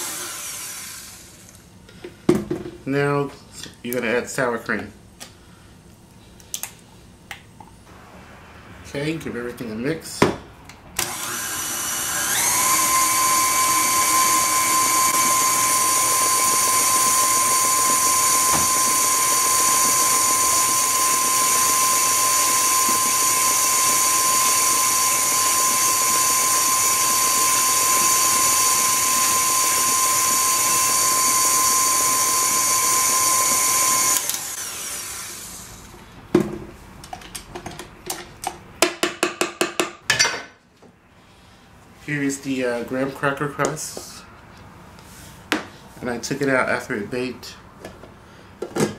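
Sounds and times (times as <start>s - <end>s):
stand mixer motor whining: 0.0s - 1.5s, 11.0s - 35.7s.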